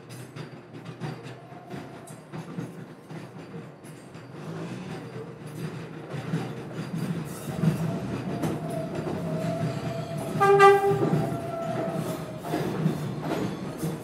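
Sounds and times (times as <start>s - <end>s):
subway train rolling over track joints: 0.0s - 14.0s
short train horn toot: 10.3s - 11.3s.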